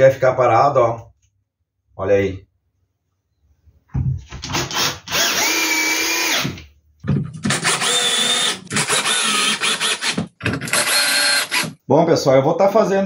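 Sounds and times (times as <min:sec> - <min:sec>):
drill trigger pulses: 0:04.5 - 0:06.6, 0:07.4 - 0:11.8
drill-driver motor whining: 0:04.7 - 0:06.6, 0:07.4 - 0:11.8.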